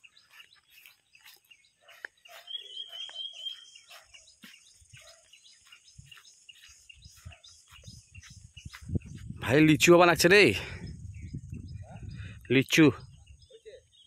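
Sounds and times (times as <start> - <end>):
faint bird chirps: 0.0 - 9.6
high bird trill: 0.0 - 9.8.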